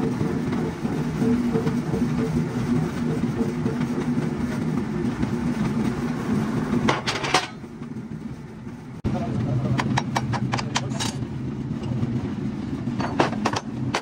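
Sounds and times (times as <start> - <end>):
engine running steadily: 0.0 - 14.0.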